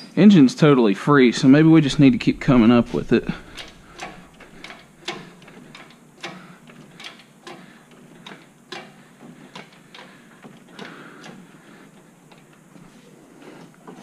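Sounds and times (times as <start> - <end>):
hydraulic hoist clicking and clanking: 1.8 - 12.8.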